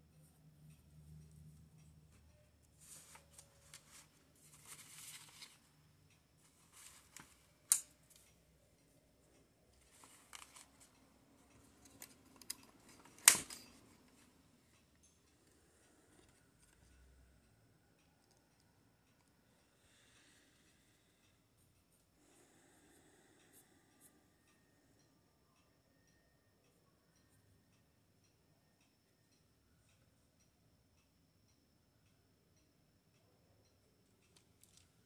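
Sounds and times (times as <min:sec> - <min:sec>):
paper rustling and sliding: 0:02.8 - 0:05.6.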